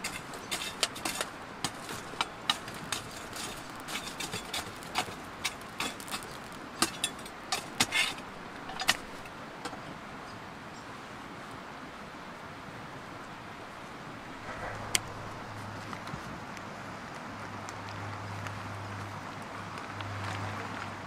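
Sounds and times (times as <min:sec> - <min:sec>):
metal tool knocking on burning wood: 0:00.0 - 0:09.2.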